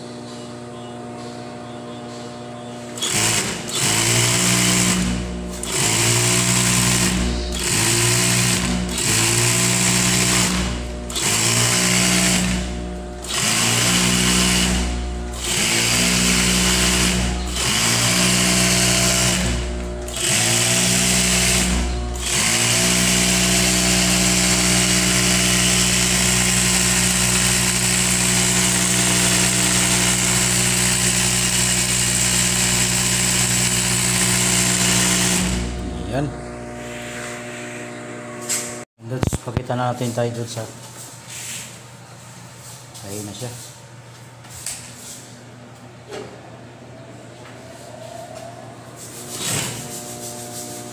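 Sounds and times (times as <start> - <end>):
sewing machine running: 3.0 - 37.0.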